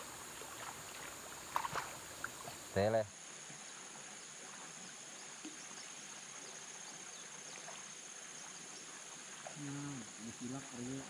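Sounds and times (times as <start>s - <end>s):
faint hiss: 0.0s - 11.0s
high-pitched insect drone: 9.4s - 11.0s.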